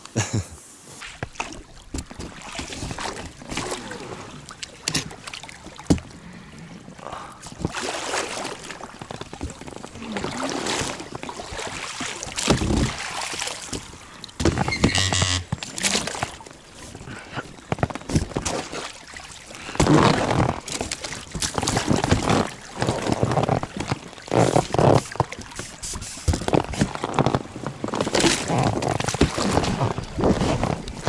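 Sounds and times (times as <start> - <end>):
paddle splashing water: 0.7 - 31.0
knocks against boat: 14.4 - 15.7.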